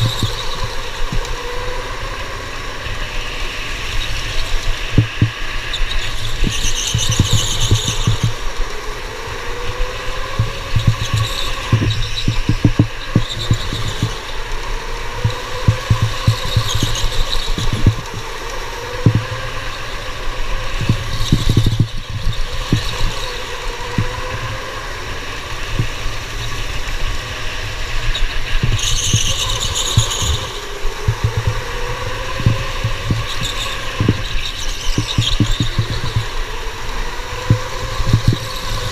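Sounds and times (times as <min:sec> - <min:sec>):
electric motor whine: 0:00.0 - 0:38.9
wind rumble: 0:00.0 - 0:38.9
tyre squeal: 0:10.4 - 0:14.4, 0:28.1 - 0:36.4
rattling vibration: 0:15.0 - 0:19.7, 0:28.6 - 0:36.6.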